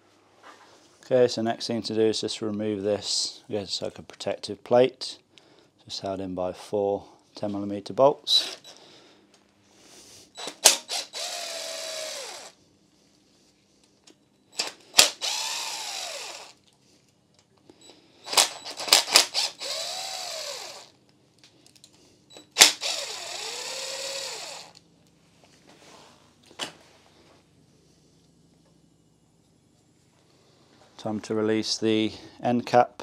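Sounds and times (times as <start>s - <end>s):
power tool motor whine: 10.4s - 12.5s, 14.6s - 16.6s, 18.3s - 20.9s, 22.5s - 24.8s.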